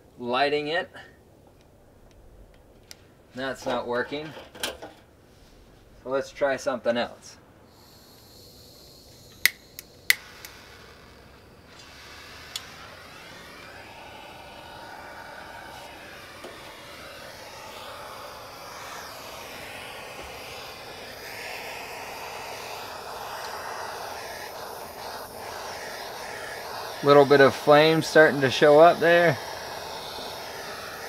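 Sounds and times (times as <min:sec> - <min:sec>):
propane torch hissing: 0:07.2 - 0:31.0
sharp click: 0:09.3 - 0:10.6.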